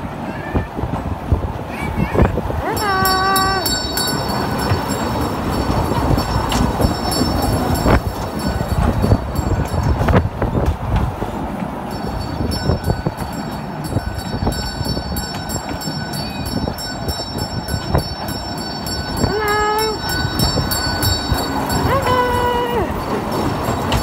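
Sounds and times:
kiddie train rumbling and ticking: 0:00.0 - 0:24.0.

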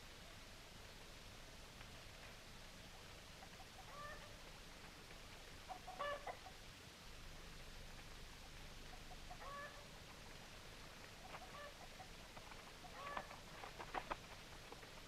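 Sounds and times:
chicken clucking: 0:03.4 - 0:04.3, 0:05.7 - 0:06.6, 0:08.8 - 0:09.9, 0:11.2 - 0:14.2.

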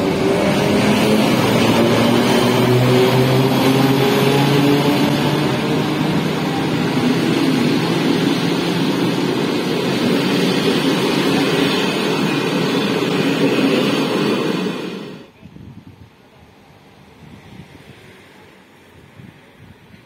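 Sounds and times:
locomotive engine drone: 0:00.0 - 0:15.3
train wheels rumbling on rail: 0:00.0 - 0:20.0.

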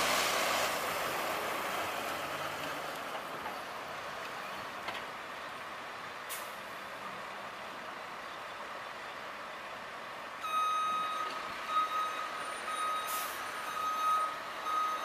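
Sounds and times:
truck diesel engine pulling away: 0:00.0 - 0:04.4
air brakes hissing: 0:13.0 - 0:13.5.

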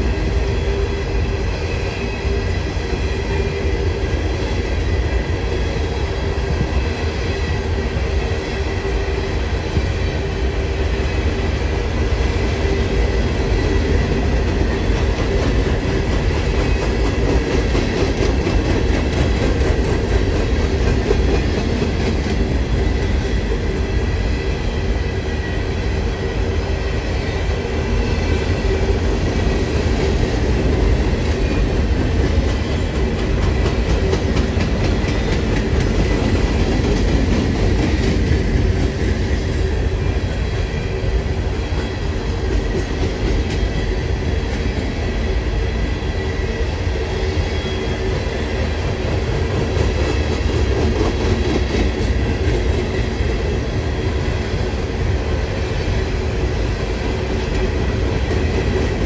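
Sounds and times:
train cars rumbling: 0:00.0 - 0:59.0
wheels clicking over rail joints: 0:12.6 - 0:23.8.

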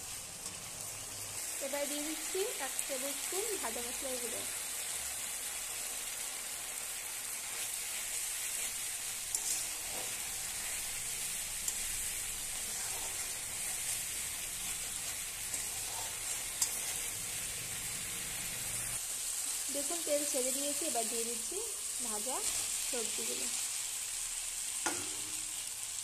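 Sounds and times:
metal spatula stirring: 0:00.0 - 0:00.9, 0:07.4 - 0:19.0
spice paste sizzling in oil: 0:00.0 - 0:26.0.

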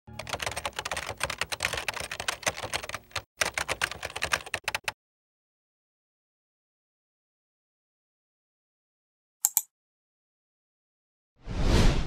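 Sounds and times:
typing on computer keyboard: 0:00.1 - 0:05.0.

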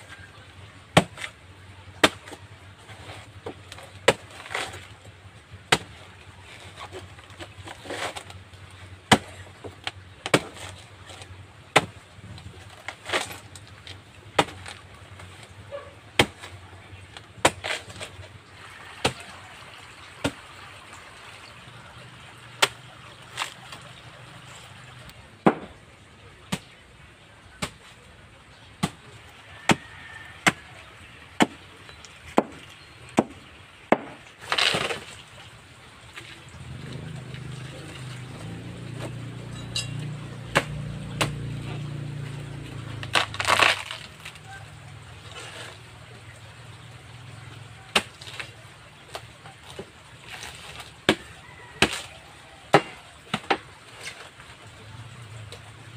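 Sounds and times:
machete chopping on a board: 0:16.2 - 0:16.5, 0:25.4 - 0:25.8, 0:32.4 - 0:32.6, 0:33.2 - 0:35.0, 0:39.0 - 0:41.6, 0:52.7 - 0:53.6.

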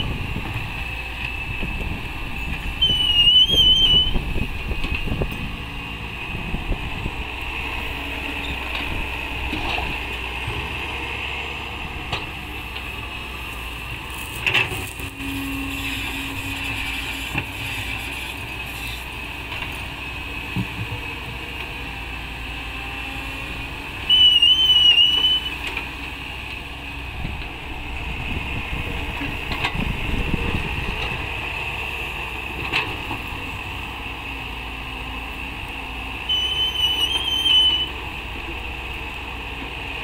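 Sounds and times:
excavator diesel engine rumbling: 0:00.0 - 0:40.0
short wavering whistle: 0:02.8 - 0:04.2, 0:24.1 - 0:25.5, 0:36.3 - 0:37.9.

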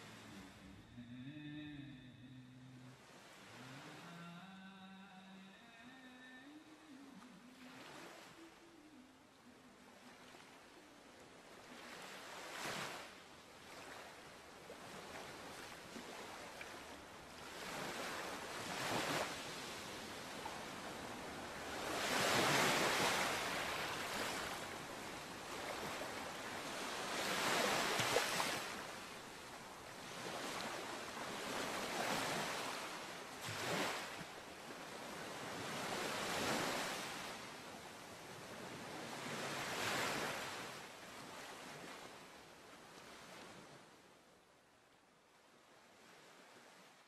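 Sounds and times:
surf-like rushing noise: 0:00.0 - 0:11.0, 0:15.7 - 0:34.6.

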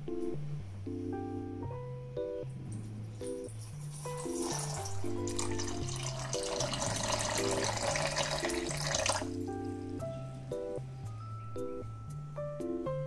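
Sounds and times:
background music: 0:00.0 - 0:13.0
water pouring into glass bowl: 0:03.2 - 0:09.4.

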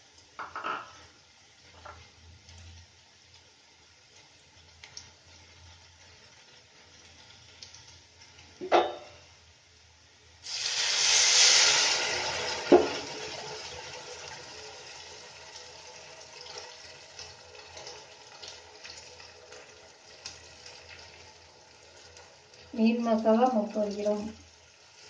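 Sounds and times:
liquid hissing in hot oil: 0:10.4 - 0:25.0.

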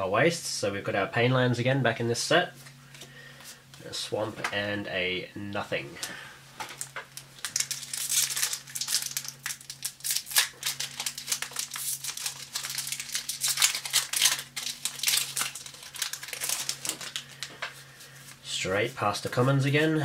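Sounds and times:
foil wrapper crinkling: 0:06.7 - 0:18.4.

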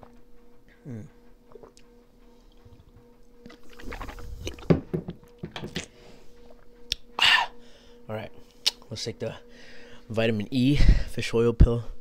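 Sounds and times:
person gulping a drink: 0:01.4 - 0:01.9, 0:03.4 - 0:05.9
liquid sloshing: 0:03.4 - 0:05.9.

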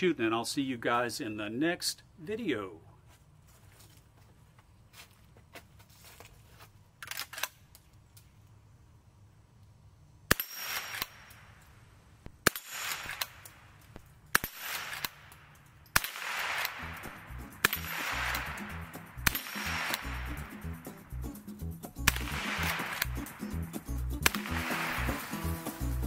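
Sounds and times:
rifle shots: 0:10.3 - 0:11.3, 0:12.4 - 0:13.6, 0:14.3 - 0:20.5, 0:22.0 - 0:23.4, 0:24.2 - 0:25.6
background music: 0:16.7 - 0:26.0.

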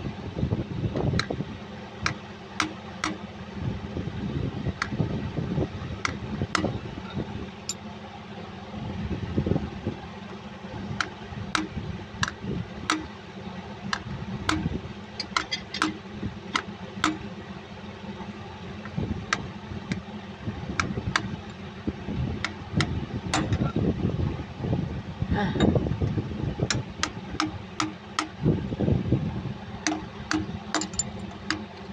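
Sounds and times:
low machinery hum: 0:00.0 - 0:31.9
hammer tapping metal: 0:02.1 - 0:03.2, 0:06.0 - 0:06.8, 0:11.0 - 0:13.2, 0:13.9 - 0:16.0, 0:16.6 - 0:17.2, 0:22.4 - 0:23.7, 0:26.7 - 0:28.4, 0:29.8 - 0:31.7.

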